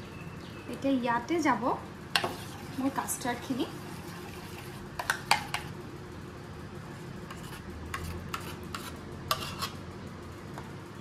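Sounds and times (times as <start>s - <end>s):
metal spoon scraping a pot: 2.2s - 3.2s, 3.8s - 5.7s, 7.3s - 9.8s.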